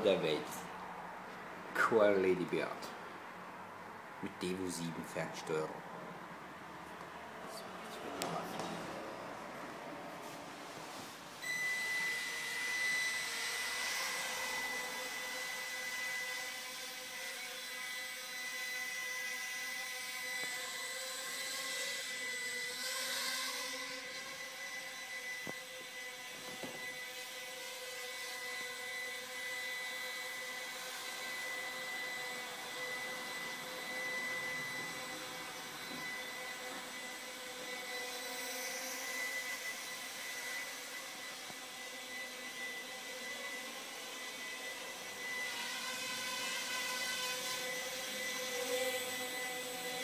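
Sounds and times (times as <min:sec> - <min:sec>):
quadcopter propellers whirring: 0:11.4 - 0:50.0.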